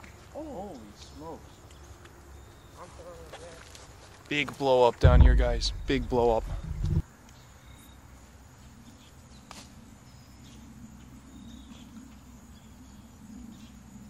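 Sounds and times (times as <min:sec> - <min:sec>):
low rumble: 0:05.0 - 0:07.0.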